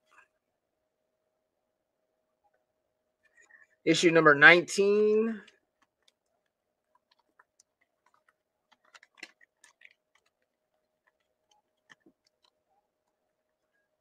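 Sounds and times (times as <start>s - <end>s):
faint steady hum: 0.0s - 14.0s
plastic bag crinkling: 5.6s - 12.6s.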